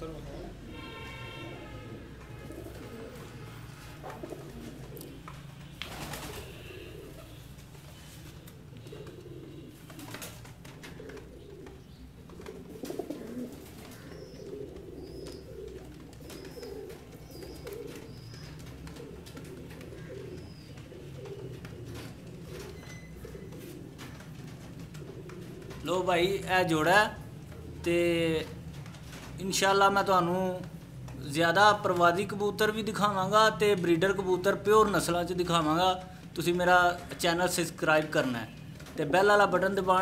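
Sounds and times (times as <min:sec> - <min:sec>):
pigeons cooing: 0:00.0 - 0:29.4.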